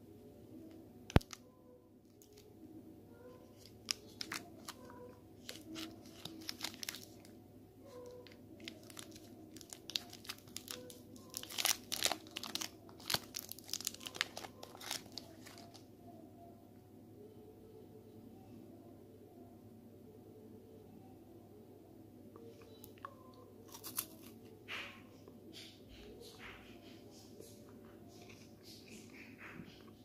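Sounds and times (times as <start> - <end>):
wrapper crinkling: 1.1 - 1.4, 3.5 - 7.3, 8.0 - 15.8, 23.6 - 24.3.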